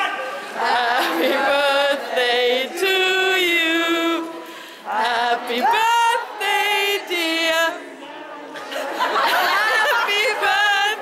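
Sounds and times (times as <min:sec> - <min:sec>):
person singing unaccompanied: 0:00.6 - 0:07.9.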